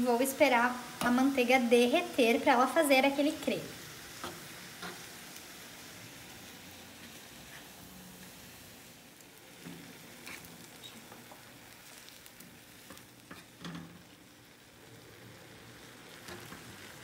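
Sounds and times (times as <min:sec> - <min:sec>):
faint steady sizzle: 0:00.0 - 0:17.0
tongs clicking and scraping pan: 0:12.9 - 0:14.0.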